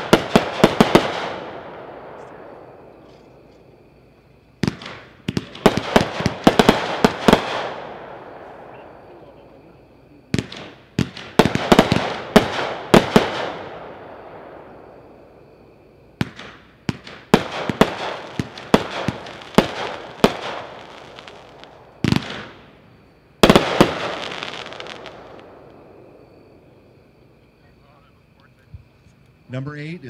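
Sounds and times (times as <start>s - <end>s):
fireworks bangs: 0.0s - 28.0s.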